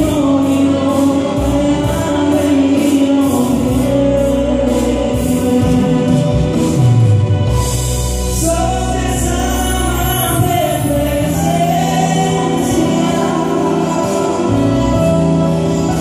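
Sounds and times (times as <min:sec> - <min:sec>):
man singing gospel: 0:00.0 - 0:07.5, 0:08.2 - 0:16.0
instrumental accompaniment: 0:00.0 - 0:16.0.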